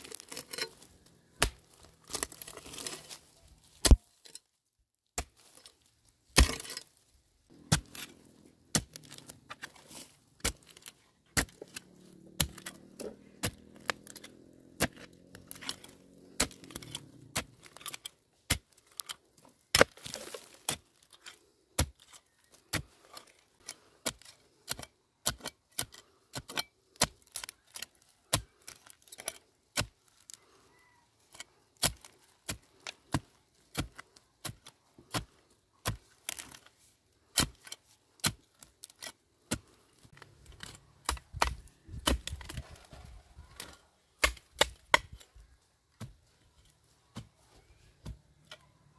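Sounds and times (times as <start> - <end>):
blade chopping: 10.4 - 18.7.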